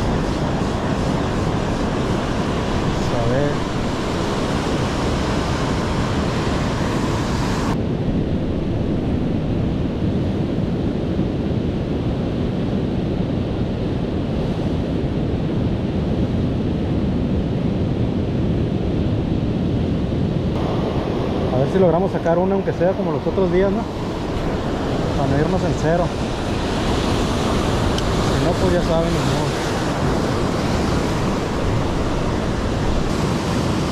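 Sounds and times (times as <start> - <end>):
surf rushing: 0.0 - 7.8, 20.6 - 33.9
wind buffeting microphone: 0.0 - 33.9.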